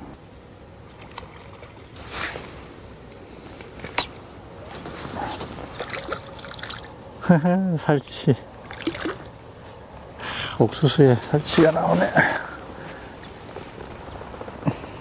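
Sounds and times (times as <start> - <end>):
light water splashing: 5.6 - 7.0, 8.6 - 9.8.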